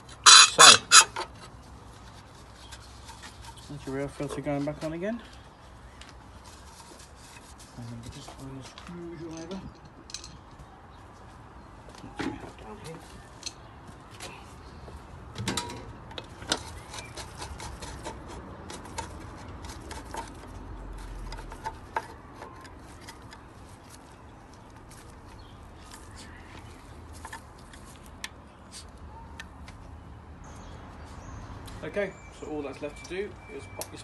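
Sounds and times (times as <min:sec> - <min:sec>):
hands rubbing plastic: 0:06.0 - 0:08.5.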